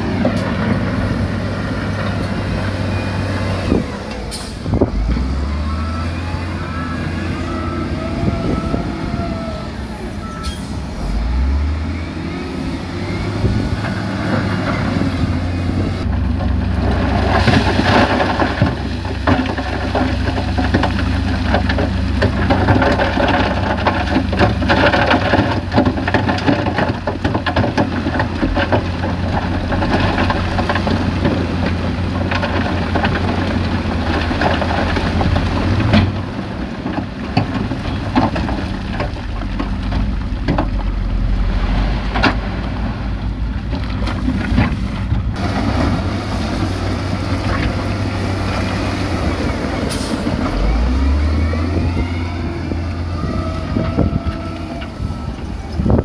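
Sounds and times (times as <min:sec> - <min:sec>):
diesel machinery engine drone: 0:00.0 - 0:56.0
stones sliding and tumbling: 0:13.8 - 0:51.9.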